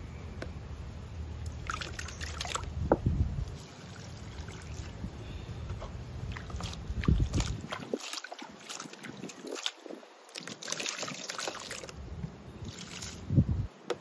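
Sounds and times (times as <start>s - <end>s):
water sloshing and pouring: 1.5s - 2.7s, 3.4s - 5.1s, 6.2s - 12.0s, 12.6s - 13.4s.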